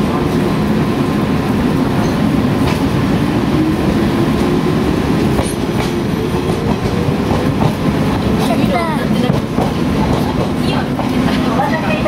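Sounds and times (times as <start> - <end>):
train rumble inside car: 0.0 - 12.0.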